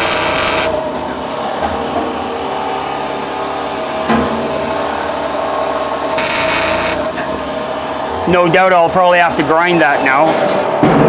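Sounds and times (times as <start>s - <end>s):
arc welding crackling: 0.0s - 0.9s, 6.1s - 7.2s
steady hum: 0.0s - 10.2s.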